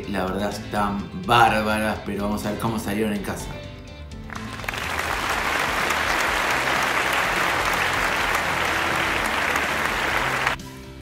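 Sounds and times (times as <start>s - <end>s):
applause: 4.3s - 10.7s.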